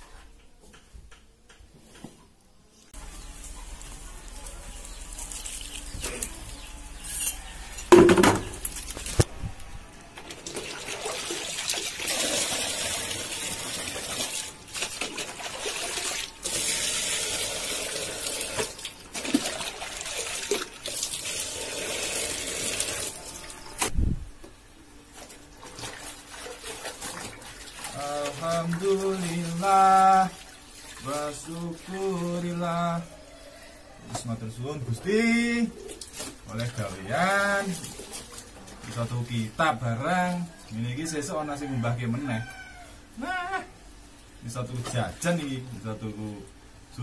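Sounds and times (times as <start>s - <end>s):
water poured from bucket splashing: 10.3s - 23.5s, 25.6s - 31.1s.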